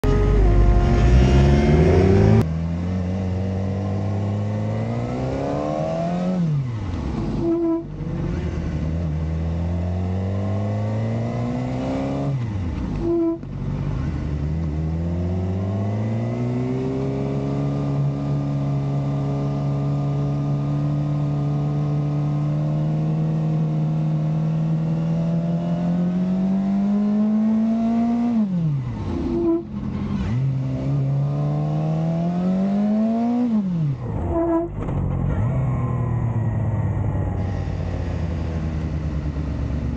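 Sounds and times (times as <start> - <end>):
motorcycle engine accelerating: 0.0 - 39.9.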